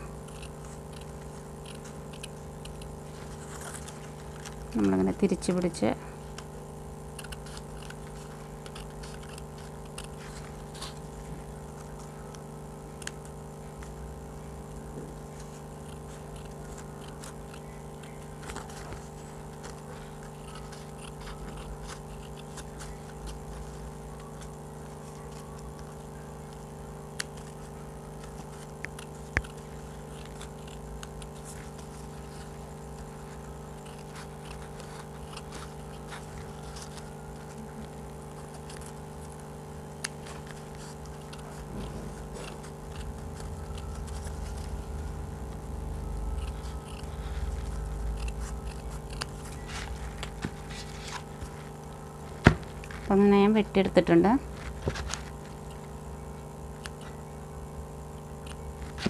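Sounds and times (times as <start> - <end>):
paper rustling: 0.0 - 5.6, 7.3 - 12.5, 14.8 - 53.2, 54.5 - 56.0
scissors snipping paper: 0.0 - 59.0
steady background hum: 0.0 - 59.0
scissor blades clicking: 0.2 - 3.0, 33.3 - 36.8, 46.2 - 50.5.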